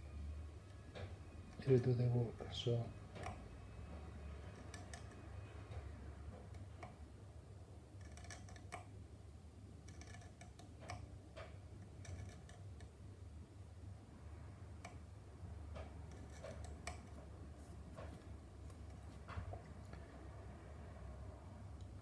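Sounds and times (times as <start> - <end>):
low steady hum: 0.0 - 22.0
scribing tool scratching plastic: 8.0 - 8.7, 9.8 - 11.0, 11.8 - 12.8, 16.1 - 17.1.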